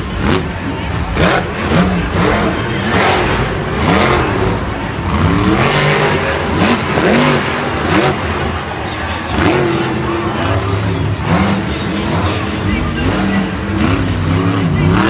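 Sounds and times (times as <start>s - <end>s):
stadium crowd noise: 0.0s - 15.0s
truck engine revving: 0.0s - 15.0s.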